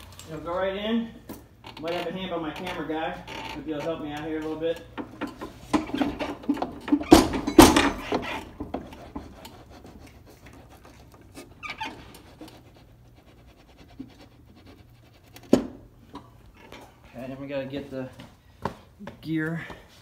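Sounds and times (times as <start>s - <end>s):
sharp metal knocks: 5.0s - 8.8s.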